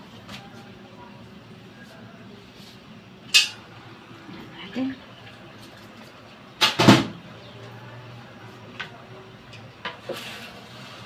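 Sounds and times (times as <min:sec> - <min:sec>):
cookware clattering: 0:03.3 - 0:03.6.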